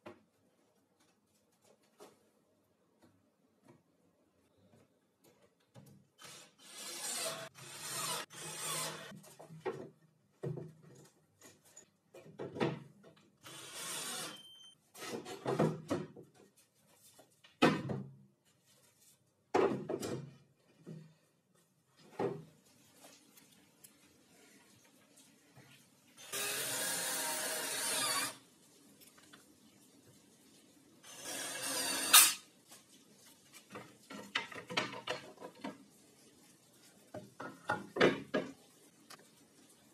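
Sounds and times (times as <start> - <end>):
cordless drill boring: 6.2 - 9.1, 13.5 - 14.4, 26.2 - 28.4, 31.1 - 32.4.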